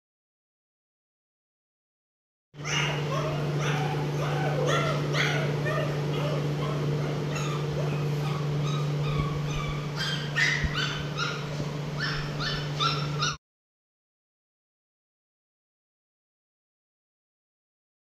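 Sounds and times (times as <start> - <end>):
puppy yelping and whimpering: 2.6 - 13.4
steady low hum: 2.6 - 13.4.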